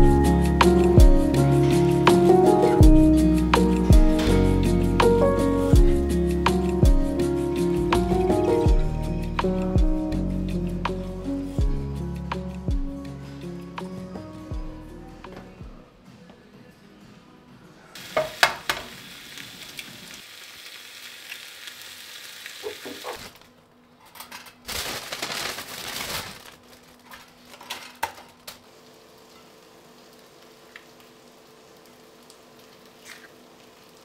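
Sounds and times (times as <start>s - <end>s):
food sizzling in a frying pan: 18.0s - 23.4s, 28.6s - 34.0s.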